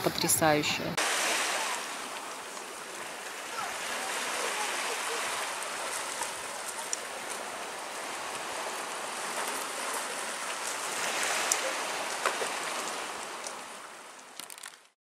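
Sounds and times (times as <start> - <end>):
small waves on pebble shore: 1.0 - 14.9
small clicks: 14.4 - 14.8.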